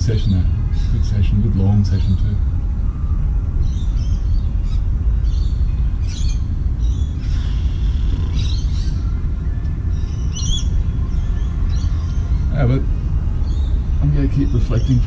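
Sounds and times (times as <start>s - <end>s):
birds chirping: 0.0s - 15.0s
wind rumble on microphone: 0.0s - 15.0s.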